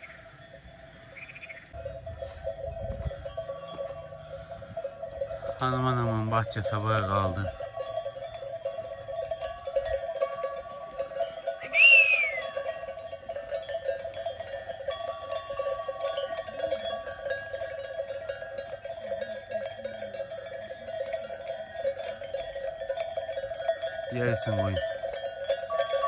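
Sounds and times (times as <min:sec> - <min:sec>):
sheep bells jingling: 0:00.0 - 0:26.0
whistled call: 0:11.6 - 0:13.0.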